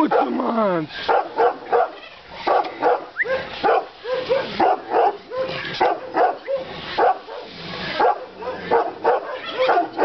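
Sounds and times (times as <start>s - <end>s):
dog barking: 0.0s - 0.5s, 1.1s - 10.0s.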